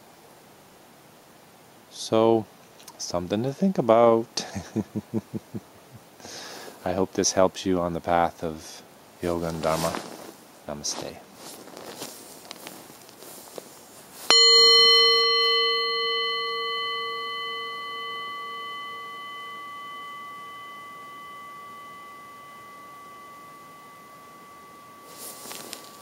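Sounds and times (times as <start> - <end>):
singing bowl ringing: 14.3 - 26.0.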